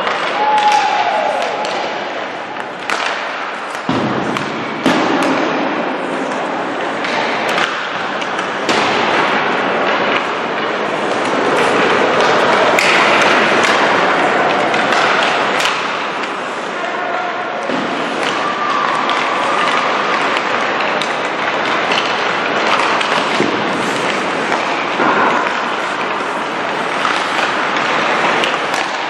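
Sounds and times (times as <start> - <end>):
hockey pucks and sticks cracking: 0.0 - 29.0
skates scraping ice: 0.0 - 29.0.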